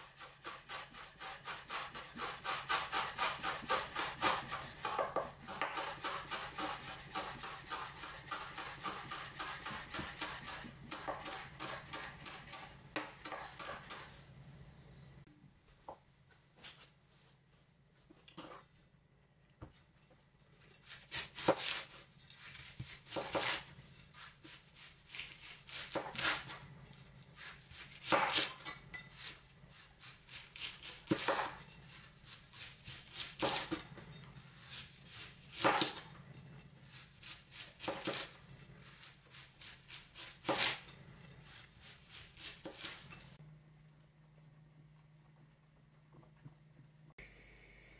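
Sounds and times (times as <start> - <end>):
cleaver shredding cabbage: 0.0 - 14.2, 20.7 - 26.6, 27.2 - 43.4.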